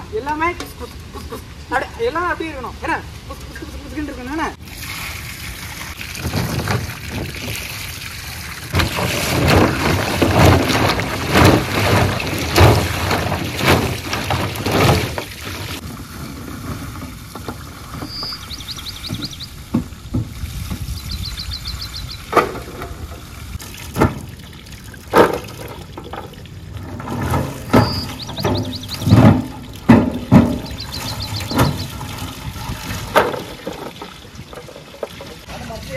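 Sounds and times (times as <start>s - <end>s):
water splashing onto metal plate: 23.5s - 35.5s.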